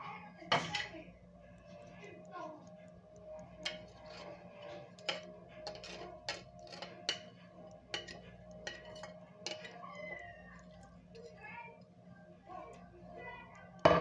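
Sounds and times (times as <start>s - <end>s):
metal spoon scraping ceramic plate: 3.6s - 10.2s.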